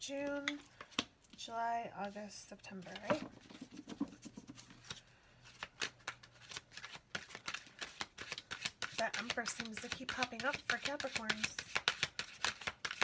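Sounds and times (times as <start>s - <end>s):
cards being shuffled: 2.8s - 13.0s.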